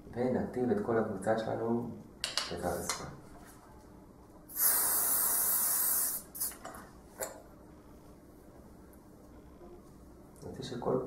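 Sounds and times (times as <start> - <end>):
aerosol spray hiss: 4.5 - 6.6.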